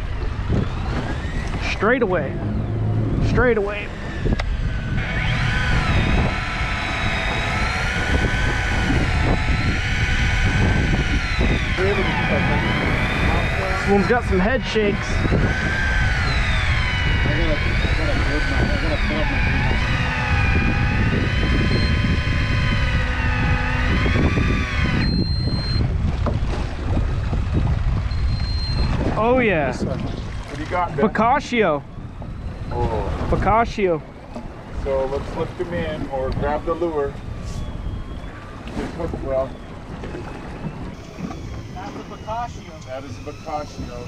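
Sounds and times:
low rumble: 0:00.0 - 0:38.8
motor whine: 0:00.0 - 0:44.0
short high beep: 0:25.0 - 0:25.8, 0:28.1 - 0:29.0.

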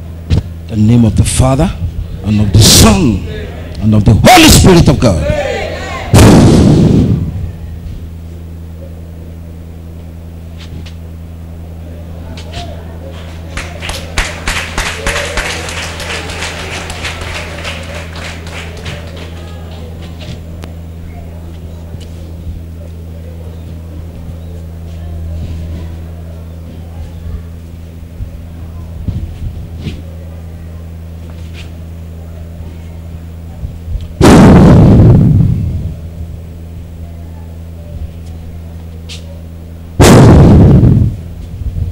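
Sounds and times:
steady low hum: 0:00.0 - 0:41.9
loud noisy blast: 0:06.1 - 0:07.5, 0:34.2 - 0:35.9, 0:40.0 - 0:41.3
crowd applauding: 0:13.0 - 0:20.2.

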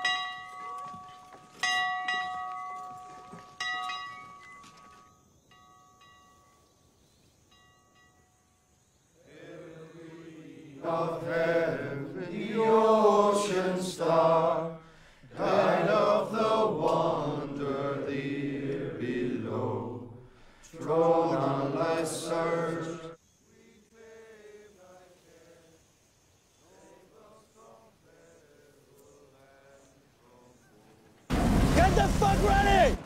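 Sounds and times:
church bell ringing: 0:00.0 - 0:06.6
men singing chant: 0:09.2 - 0:25.8, 0:26.6 - 0:30.9.

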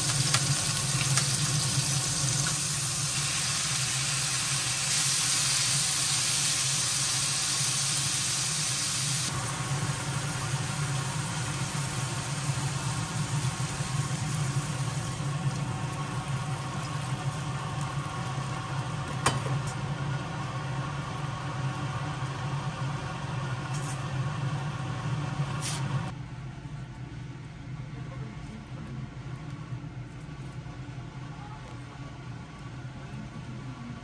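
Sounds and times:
steady cooking hiss: 0:00.0 - 0:26.1.

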